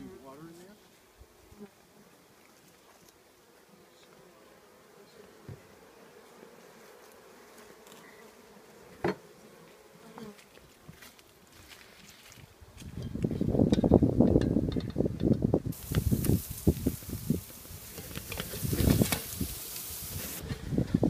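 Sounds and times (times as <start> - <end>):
honeybees humming: 3.2 - 10.4, 15.8 - 20.4.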